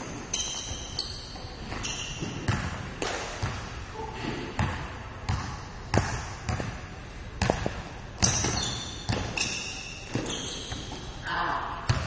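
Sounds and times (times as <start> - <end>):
basketball bouncing on hardwood: 1.7 - 2.8, 7.4 - 9.4.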